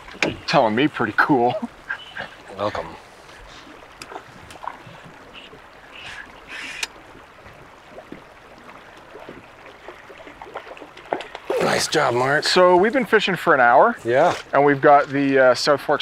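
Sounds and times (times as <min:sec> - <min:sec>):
water splashing: 0:00.0 - 0:16.0.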